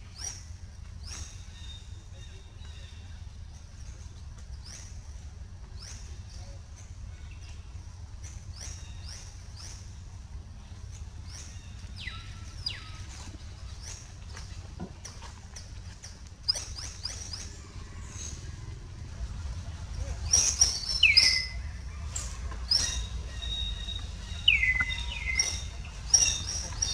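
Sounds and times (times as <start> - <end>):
steady low rumble: 0.0 - 26.9
high chirping calls: 11.2 - 14.0, 19.9 - 26.9.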